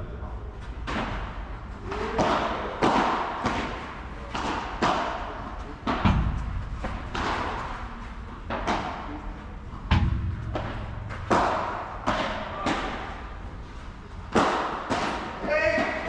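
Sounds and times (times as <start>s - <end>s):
ball bouncing on court: 2.0s - 7.8s, 9.8s - 13.4s.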